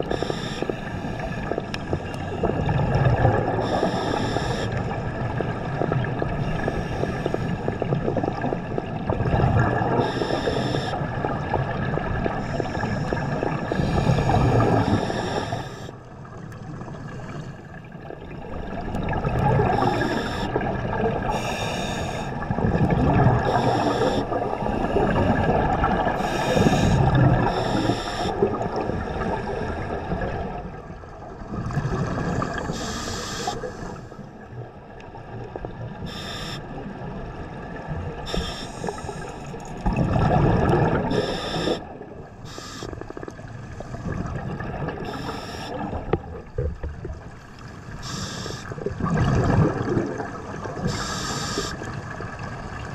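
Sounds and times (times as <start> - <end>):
diver breathing through regulator: 0.0 - 2.3, 3.6 - 4.8, 6.5 - 7.7, 10.0 - 11.0, 12.4 - 16.0, 19.6 - 20.6, 21.3 - 22.4, 23.4 - 30.1, 32.3 - 34.2, 36.0 - 36.7, 38.3 - 39.6, 41.0 - 44.4, 45.0 - 46.1, 48.0 - 48.8, 50.8 - 51.9
gurgling exhaled bubbles: 0.0 - 52.9.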